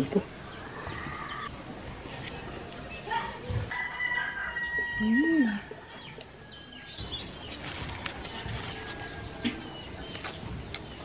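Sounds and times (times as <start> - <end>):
rooster crowing: 3.7 - 7.0.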